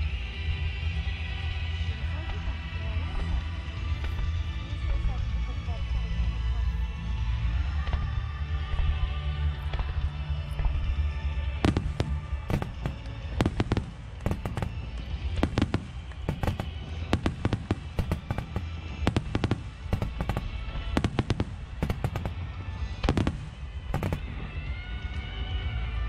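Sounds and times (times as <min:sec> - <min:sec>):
fireworks bursting: 0:11.6 - 0:24.6
low rumble: 0:11.6 - 0:26.0.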